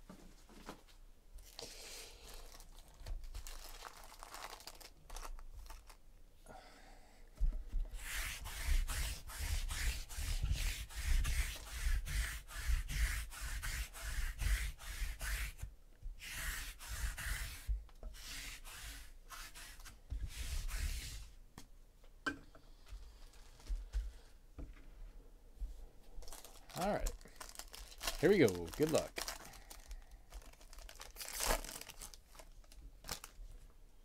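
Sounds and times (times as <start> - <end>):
lint roller rasping on table: 8.0 - 15.6, 16.2 - 21.3.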